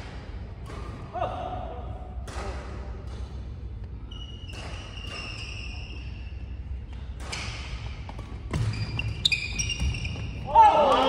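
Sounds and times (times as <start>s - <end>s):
racket hitting shuttlecock: 0.0s - 11.0s
shoes squeaking on wooden floor: 8.5s - 10.4s.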